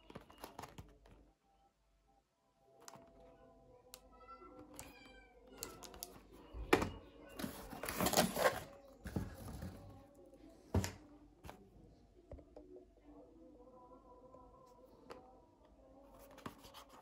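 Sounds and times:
cardboard and plastic wrap rustling: 6.7 - 10.0.

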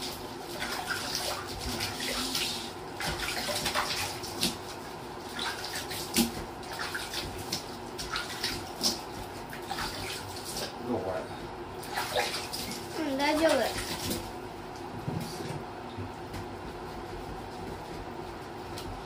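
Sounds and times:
water splashing in a plastic basin: 0.0 - 10.8, 11.8 - 14.4.

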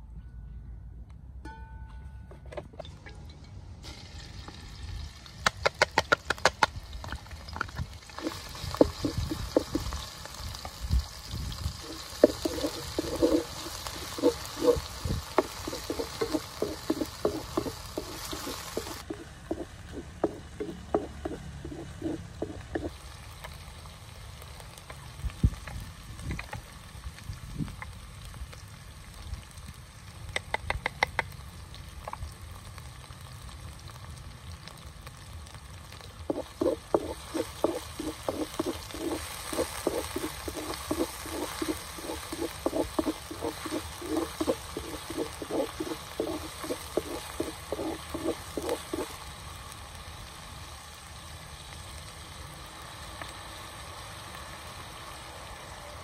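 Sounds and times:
steady hiss: 3.8 - 33.4, 34.1 - 56.0
utensil tapping cookware: 11.8 - 22.9, 36.3 - 49.1.

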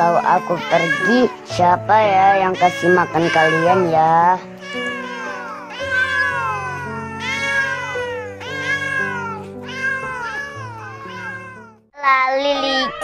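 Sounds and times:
background music with low notes: 0.0 - 13.0
cats meowing: 4.6 - 13.0.

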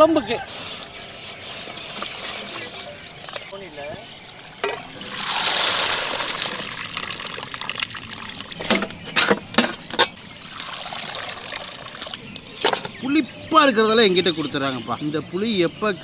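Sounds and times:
water splashing into a pot: 4.8 - 9.1, 10.4 - 12.2.

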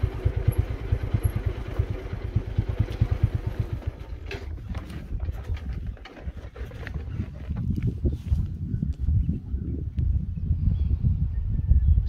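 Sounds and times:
motorcycle engine thumping: 0.0 - 7.9.

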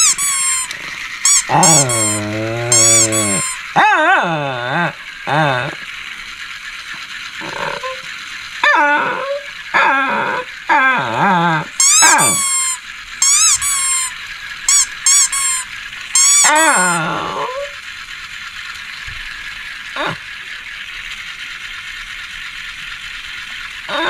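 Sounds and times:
dog whining and yowling: 0.0 - 5.8, 7.4 - 17.8.

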